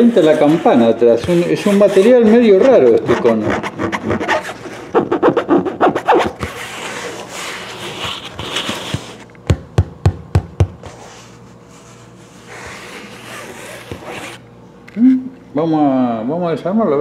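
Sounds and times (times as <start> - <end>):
fingertip scratching speaker cone: 0.0 - 9.2, 10.8 - 14.4.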